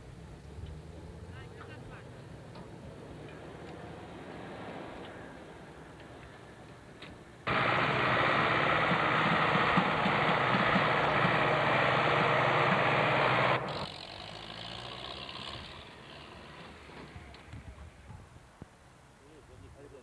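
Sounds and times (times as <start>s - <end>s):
tractor diesel engine running: 7.5s - 16.4s.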